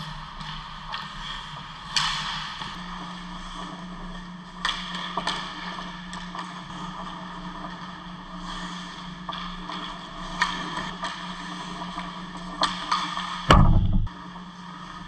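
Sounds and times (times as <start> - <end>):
steady low hum: 13.5 - 14.2.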